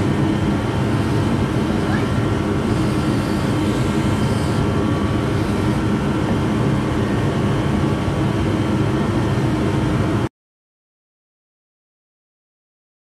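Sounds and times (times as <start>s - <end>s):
low machine drone: 0.0s - 10.3s.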